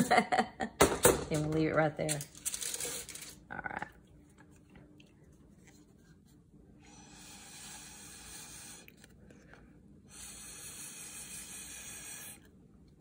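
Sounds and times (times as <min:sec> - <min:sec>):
breathy hiss through straw: 0:06.9 - 0:08.9, 0:10.1 - 0:12.4.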